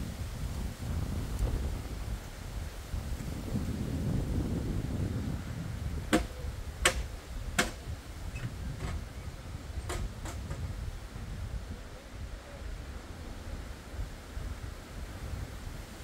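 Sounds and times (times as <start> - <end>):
wind rumble on microphone: 0.0 - 16.0
sharp knocks: 6.1 - 7.8.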